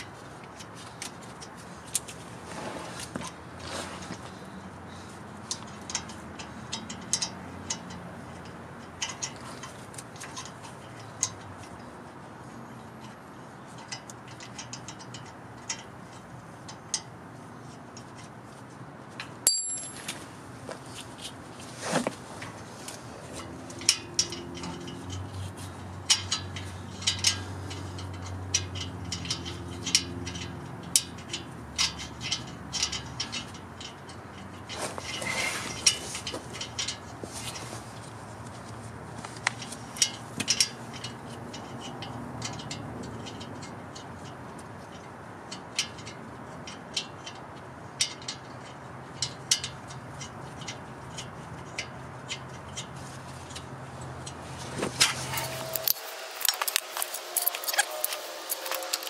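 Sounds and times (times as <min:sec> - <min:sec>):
metal tools clinking: 0:19.4 - 0:20.3, 0:55.0 - 0:59.0.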